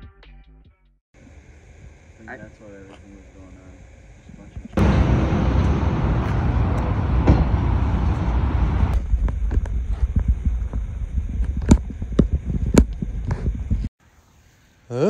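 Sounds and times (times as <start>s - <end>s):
heavy rushing noise: 4.8s - 11.4s
car engine rumbling: 4.8s - 13.9s.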